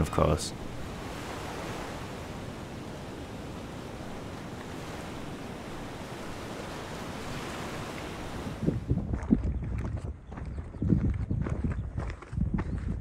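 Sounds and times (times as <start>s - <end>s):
small waves on pebble beach: 0.6s - 8.8s.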